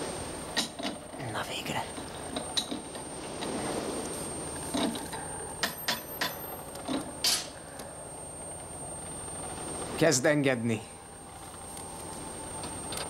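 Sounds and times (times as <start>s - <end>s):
steady background noise: 0.0s - 13.0s
tools clanking on metal: 4.7s - 7.6s.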